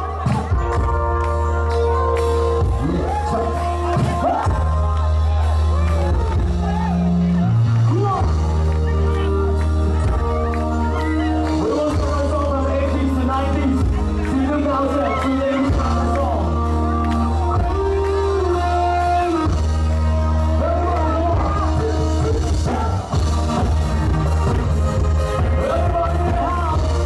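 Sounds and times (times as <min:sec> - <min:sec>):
music with singing and heavy bass: 0:00.0 - 0:27.0.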